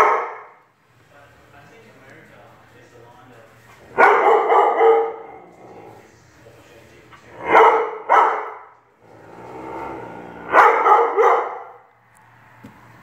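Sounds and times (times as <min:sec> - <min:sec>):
dog barking: 0:00.0 - 0:00.6, 0:03.9 - 0:05.5, 0:07.4 - 0:08.8, 0:10.5 - 0:11.9.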